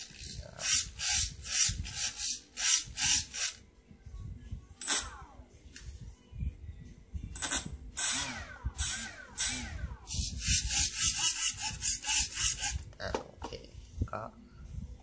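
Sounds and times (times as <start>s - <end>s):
rapid servo buzzes: 0.0s - 3.6s, 8.0s - 12.8s
servos whirring: 0.0s - 3.6s, 7.4s - 12.8s.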